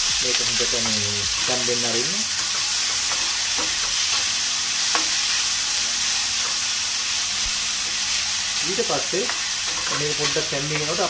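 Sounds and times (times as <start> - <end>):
onions sizzling in oil: 0.0 - 11.0.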